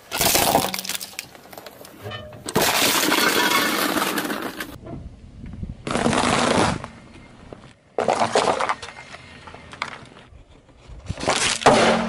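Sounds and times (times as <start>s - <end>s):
small cracks: 0.0s - 2.0s.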